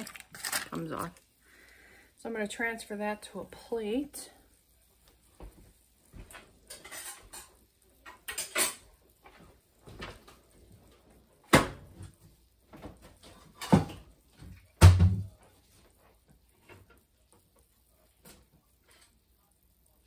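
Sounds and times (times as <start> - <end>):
footsteps: 5.0 - 7.4
knocks and clacks in kitchen: 5.4 - 15.5.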